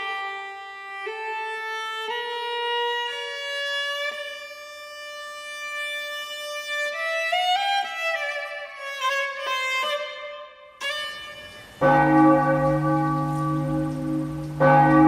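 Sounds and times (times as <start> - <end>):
solo violin melody: 0.0 - 11.8.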